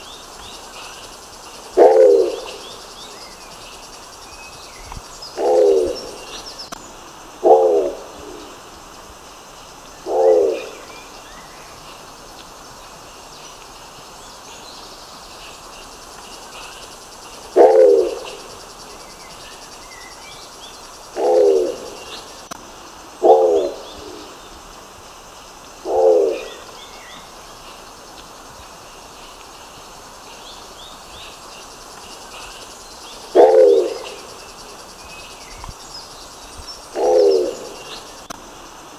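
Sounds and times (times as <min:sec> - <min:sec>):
small birds chirping: 0:00.0 - 0:38.4
pigeon cooing: 0:01.8 - 0:02.6, 0:05.4 - 0:06.2, 0:07.4 - 0:08.2, 0:10.1 - 0:10.8, 0:17.6 - 0:18.4, 0:21.2 - 0:22.0, 0:23.2 - 0:24.3, 0:25.9 - 0:26.6, 0:33.4 - 0:34.2, 0:37.0 - 0:37.7.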